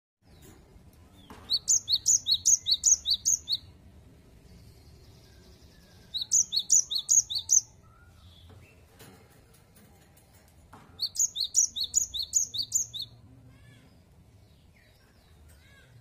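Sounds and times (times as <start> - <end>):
bird whistled song: 1.2 - 3.7, 5.2 - 8.4, 11.0 - 13.2.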